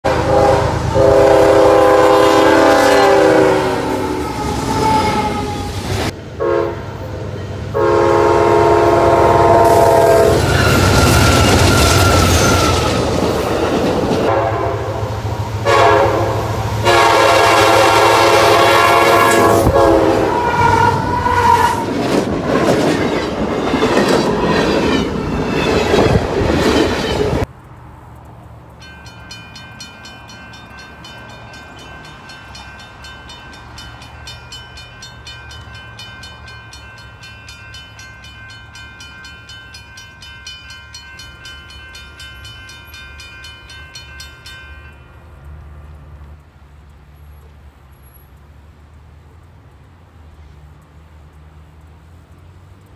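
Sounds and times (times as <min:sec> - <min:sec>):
train air horn blasts: 0:00.0 - 0:05.8, 0:06.4 - 0:07.0, 0:07.7 - 0:13.0, 0:14.2 - 0:21.9
train wheels rumbling on rail: 0:00.0 - 0:52.9
thin high tones: 0:28.8 - 0:45.1.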